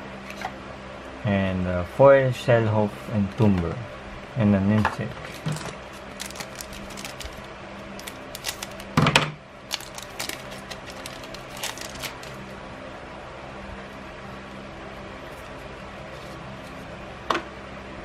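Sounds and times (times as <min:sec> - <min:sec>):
cards sliding out: 0:05.3 - 0:09.0, 0:09.7 - 0:12.4
foil wrapper crinkling: 0:05.3 - 0:09.0, 0:09.7 - 0:12.4.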